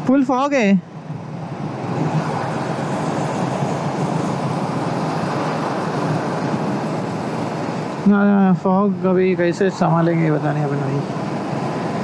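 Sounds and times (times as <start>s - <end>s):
motorcycle engine hum: 0.0s - 12.0s
wind rush on microphone: 0.9s - 9.7s.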